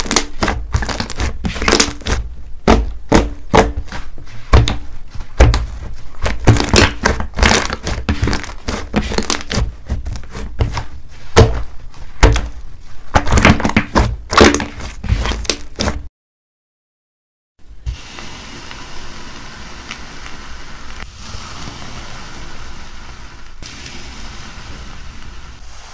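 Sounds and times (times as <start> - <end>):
air pockets squishing and popping: 0.0 - 16.1
hands squeezing slime: 6.2 - 11.4.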